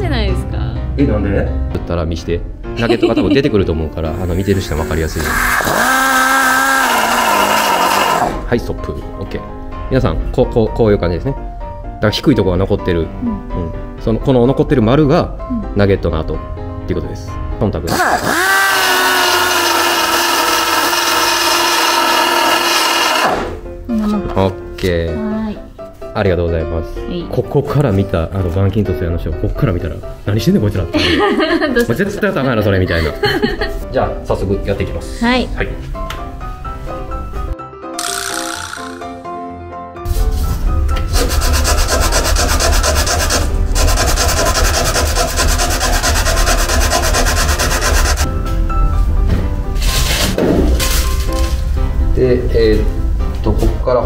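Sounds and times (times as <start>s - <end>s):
background music: 0.0s - 54.0s
power sander whining: 4.4s - 8.4s, 17.9s - 23.6s, 43.2s - 48.3s
sanding sponge scrubbing metal: 41.1s - 48.3s.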